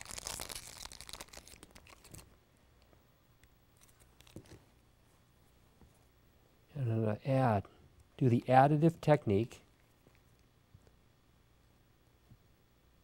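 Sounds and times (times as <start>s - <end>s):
aluminium foil crinkling: 0.0s - 2.3s.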